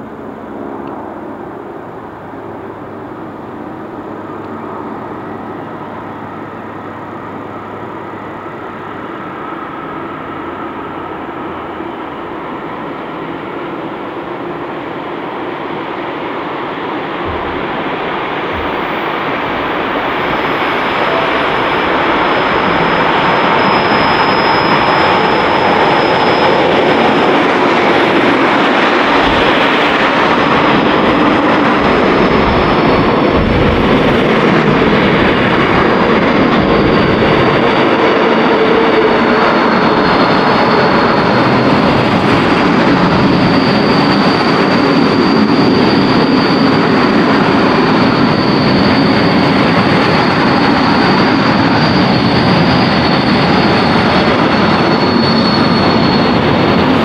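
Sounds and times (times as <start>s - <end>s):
diesel locomotive passing: 0.0s - 57.0s
train wagons rolling past: 0.0s - 57.0s
thin high tone: 17.2s - 29.2s.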